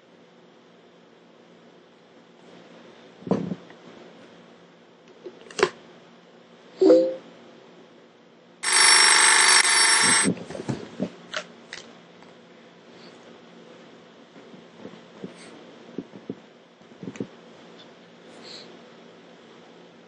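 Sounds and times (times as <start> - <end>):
loud electronic ringing: 8.6 - 10.3.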